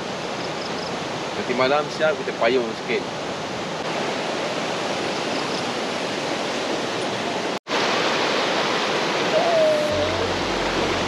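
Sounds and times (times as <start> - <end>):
river rushing: 0.0 - 11.0.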